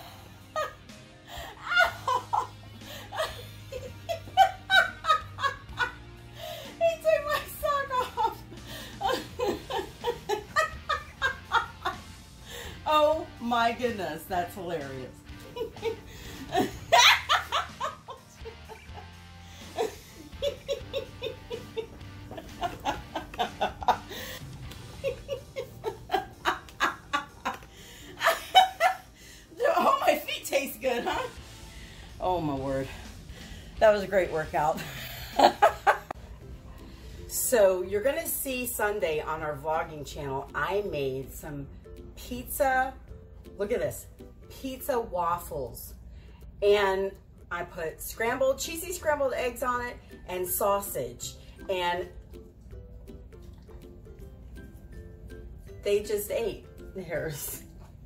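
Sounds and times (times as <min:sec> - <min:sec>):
background music: 0:00.0 - 0:58.0
woman laughing: 0:00.3 - 0:13.2, 0:14.6 - 0:31.4, 0:34.8 - 0:36.2.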